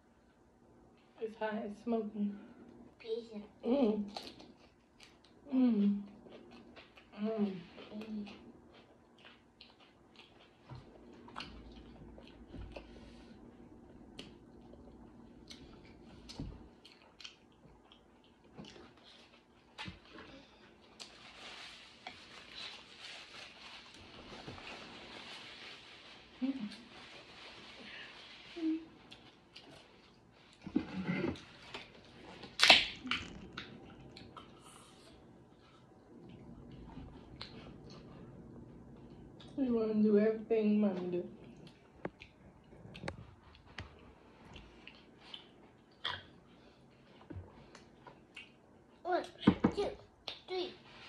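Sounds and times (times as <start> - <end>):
close chewing: 7.7 - 13.2, 13.9 - 19.8.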